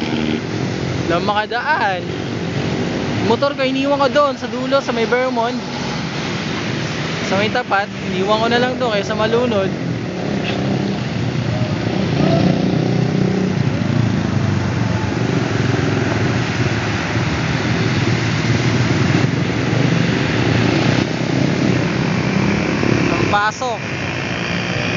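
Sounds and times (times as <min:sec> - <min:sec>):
cars driving through water: 0:00.0 - 0:24.9
motorcycle engines running: 0:00.0 - 0:24.9.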